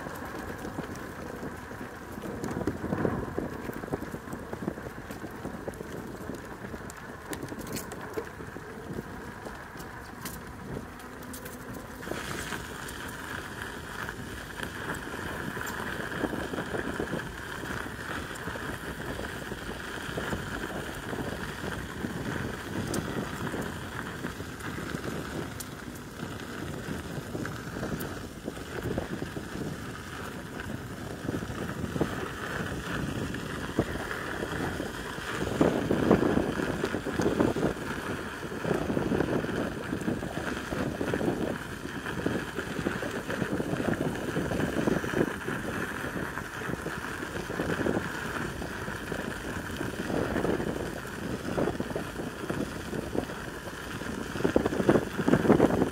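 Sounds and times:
tyres rolling on gravel: 0.0 - 55.9
wind buffeting microphone: 0.0 - 55.9.

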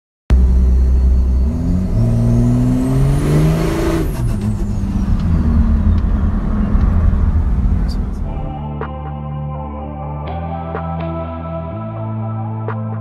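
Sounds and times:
diesel engine accelerating: 0.3 - 8.6.

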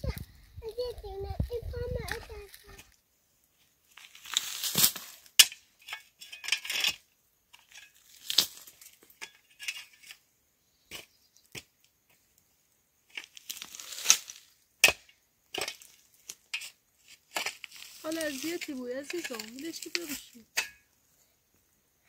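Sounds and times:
rustling handling noises: 17.0 - 20.4.

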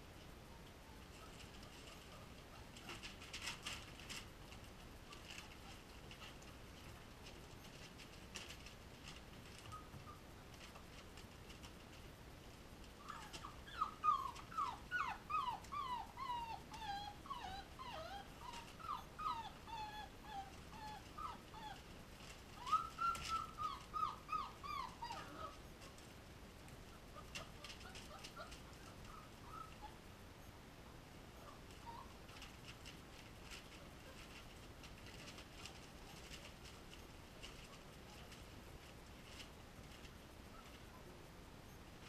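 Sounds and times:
puppies whimpering: 13.0 - 21.8, 22.6 - 25.6.

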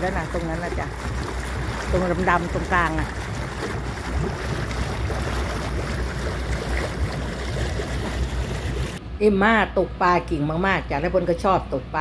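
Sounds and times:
wind and sea water rushing: 0.0 - 9.0.

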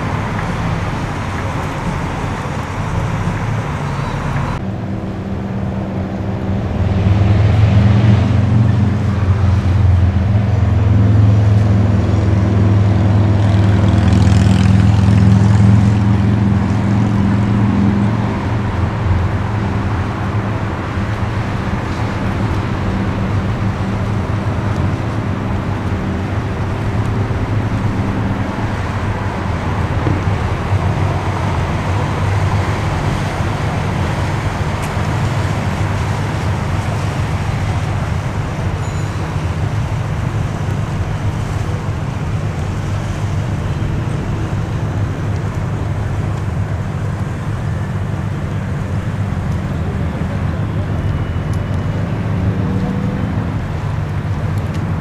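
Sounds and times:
low engine hum: 0.0 - 55.0
traffic rumble: 0.0 - 55.0.

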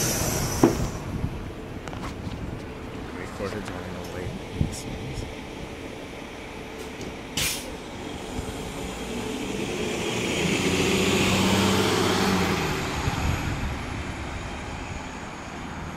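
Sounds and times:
air brakes hissing: 0.0 - 1.2, 6.8 - 7.8
bus diesel engine accelerating: 0.0 - 15.9.

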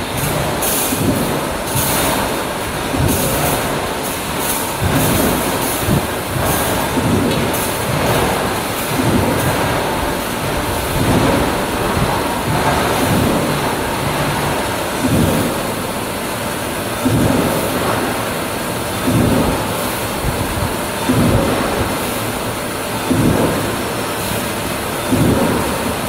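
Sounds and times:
heavy machine thumps: 0.0 - 15.9, 17.0 - 22.4, 23.0 - 24.4, 25.0 - 26.0
machinery clatter: 0.0 - 26.0.

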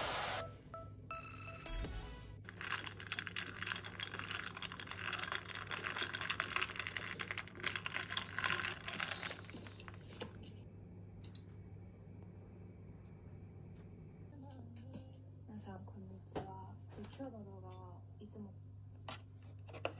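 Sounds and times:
ice cubes clinking against a glass: 2.5 - 9.2.

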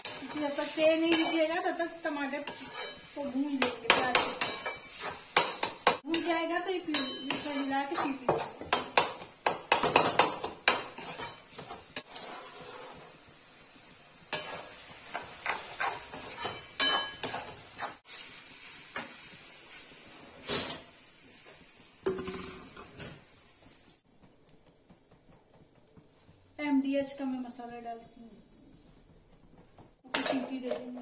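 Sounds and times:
metal spoon scraping a pan: 0.0 - 13.3, 14.2 - 23.2, 30.0 - 31.0.

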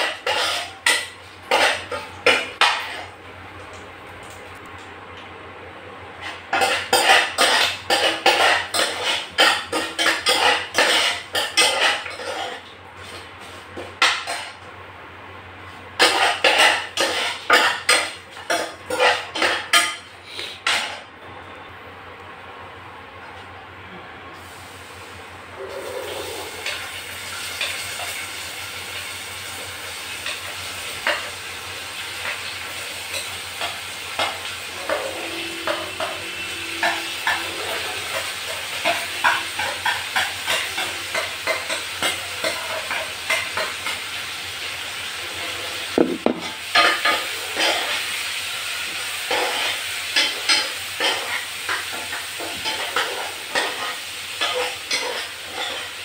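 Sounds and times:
steel spoon scraping a pan: 0.0 - 3.1, 33.0 - 44.1, 45.2 - 48.2, 48.9 - 56.0
onions sizzling in oil: 24.4 - 56.0.

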